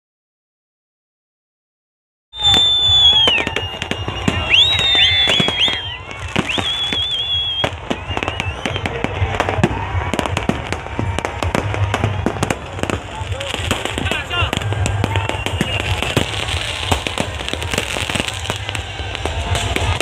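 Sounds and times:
fireworks bangs and cracks: 2.4 - 20.0
fireworks whistles: 2.4 - 20.0.

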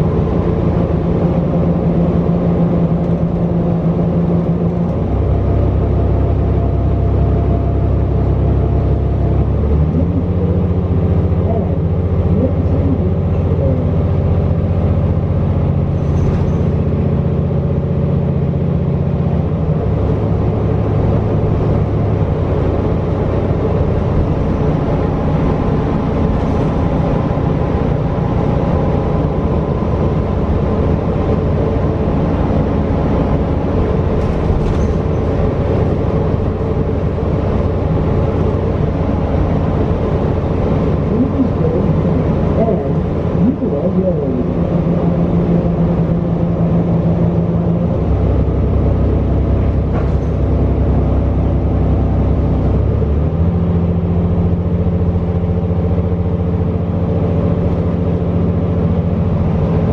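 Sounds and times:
bus engine drone with whine: 0.0 - 59.9.

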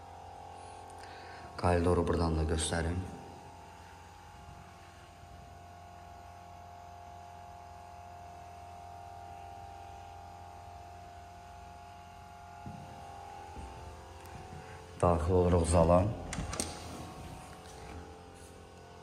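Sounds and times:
faint electrical hum: 0.0 - 19.0.

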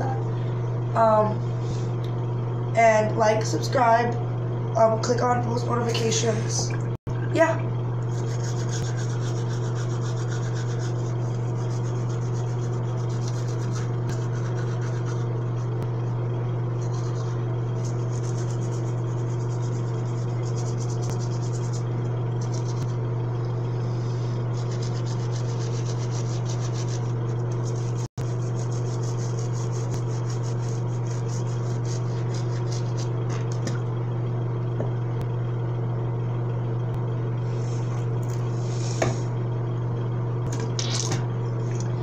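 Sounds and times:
loud steady low hum: 0.0 - 42.0
toothbrush scrubbing teeth: 8.0 - 15.8, 16.8 - 21.8, 22.4 - 22.9, 24.5 - 33.6.

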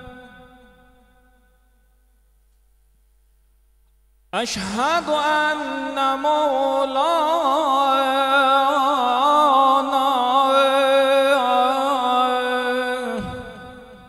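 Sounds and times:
man chanting call to prayer: 0.0 - 1.1, 4.4 - 14.0.

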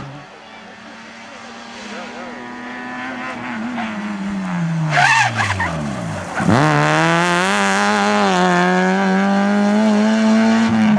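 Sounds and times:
rally car engine revving: 0.0 - 10.9.

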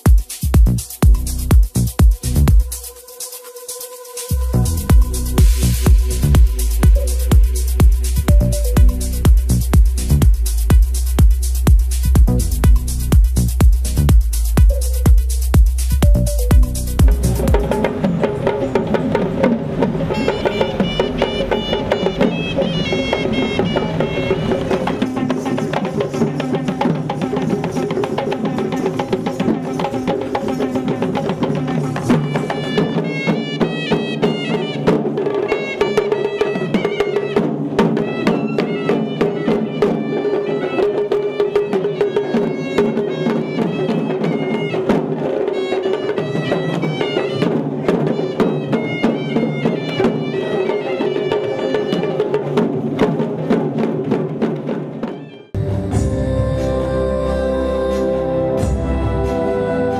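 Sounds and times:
fast drum strokes: 0.0 - 57.0
droning wind instrument: 19.4 - 25.6, 55.6 - 59.9.

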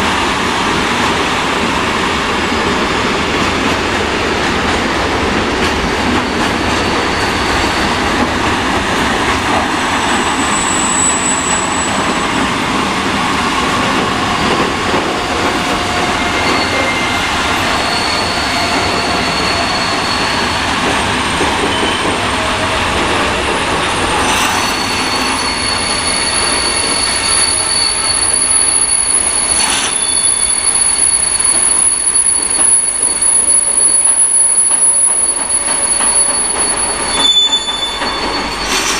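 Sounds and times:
freight train wheels rumbling: 0.0 - 38.9
high-pitched wheel squeal: 10.2 - 12.4, 15.6 - 22.7, 24.0 - 38.9.

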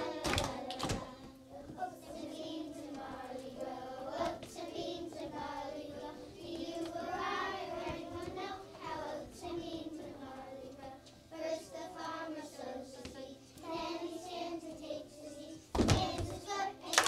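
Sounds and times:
children singing: 0.0 - 17.0
hands clapping: 0.2 - 1.1.

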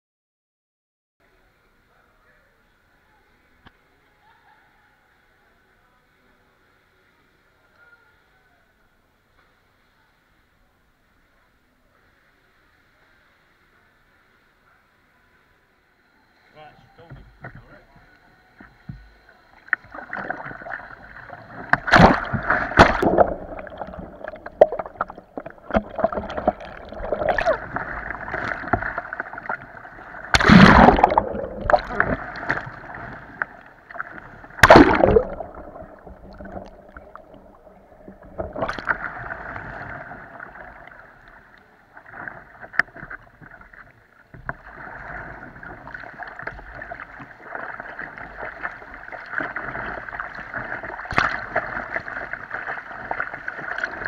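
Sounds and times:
water sloshing against hull: 17.0 - 54.0
paddle strokes splashing: 19.7 - 43.8, 44.5 - 54.0.

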